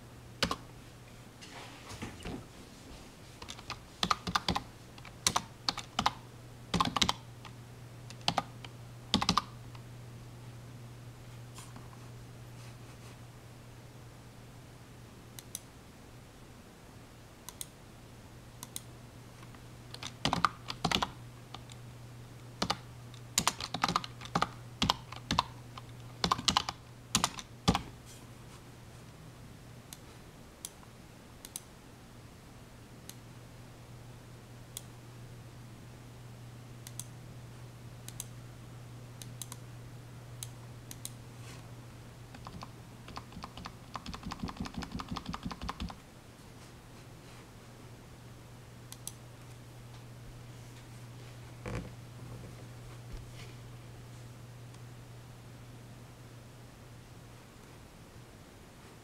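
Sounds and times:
computer keyboard typing: 0.4s - 0.6s, 3.4s - 7.3s, 8.1s - 8.5s, 9.1s - 9.6s, 19.9s - 21.8s, 22.6s - 22.8s, 23.4s - 27.9s, 42.3s - 46.0s.

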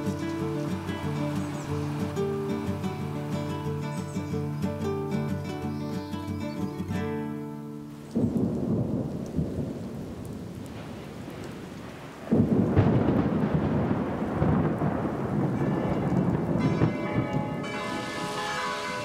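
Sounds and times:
thunder rumbling: 0.0s - 3.6s, 8.2s - 19.0s
rain falling: 0.0s - 19.0s
church bells ringing: 15.6s - 19.0s.

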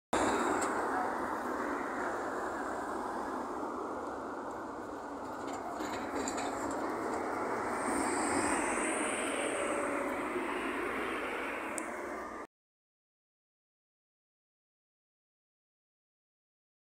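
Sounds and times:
street traffic: 0.1s - 12.5s
bus driving past: 0.2s - 12.5s
high whine: 0.2s - 12.5s.

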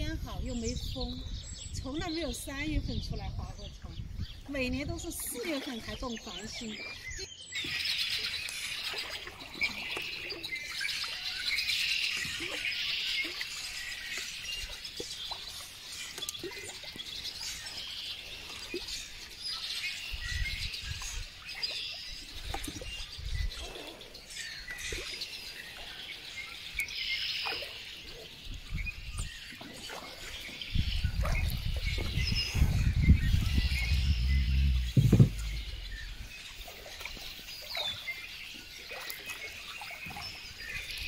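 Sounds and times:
songbirds chirping: 0.0s - 41.0s
soft low rumbles: 30.9s - 36.8s.

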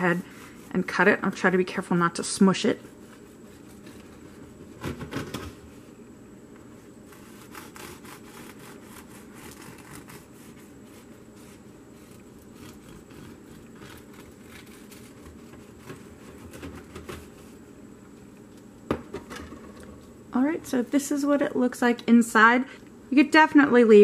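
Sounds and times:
knife sawing through bread: 7.1s - 15.2s.

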